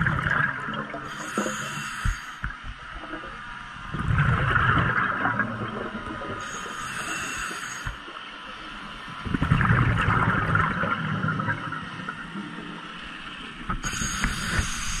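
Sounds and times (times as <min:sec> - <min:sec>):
rumble of exhaled bubbles: 0:00.0 - 0:01.1, 0:03.0 - 0:06.6, 0:09.1 - 0:12.8
diver breathing through regulator: 0:01.1 - 0:02.4, 0:06.4 - 0:08.0, 0:13.8 - 0:15.0.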